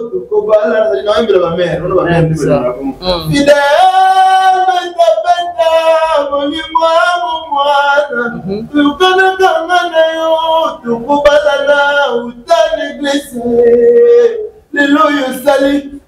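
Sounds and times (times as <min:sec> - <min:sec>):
man singing slow song: 0:03.0 - 0:16.0.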